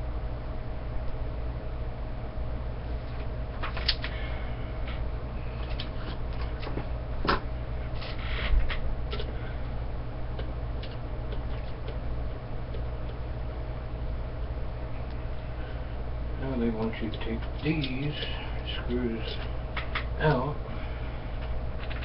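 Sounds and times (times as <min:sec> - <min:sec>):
steady low hum: 0:00.0 - 0:22.0
hands handling paper: 0:03.0 - 0:04.2.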